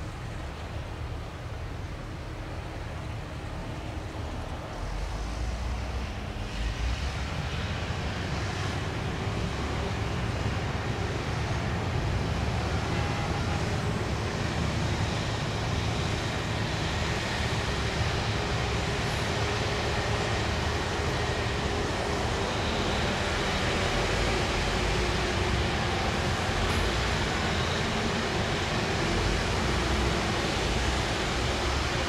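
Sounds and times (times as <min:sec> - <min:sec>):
diesel engine rumbling: 0:07.4 - 0:32.0.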